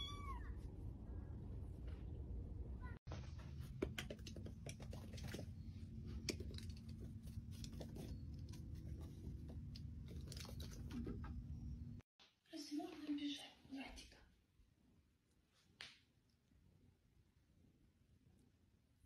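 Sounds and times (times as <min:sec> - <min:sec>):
paws and ball tapping on paving: 0:03.7 - 0:10.2.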